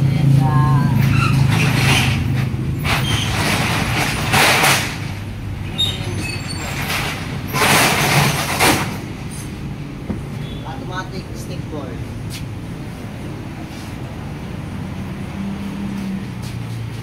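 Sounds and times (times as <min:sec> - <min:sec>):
vehicle engine hum: 0:00.0 - 0:17.0.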